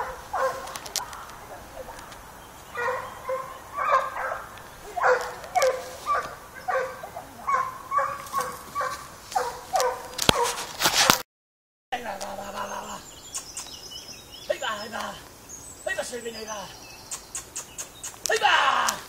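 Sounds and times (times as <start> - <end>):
hunting dog barking: 0.0 - 2.1, 2.7 - 11.2.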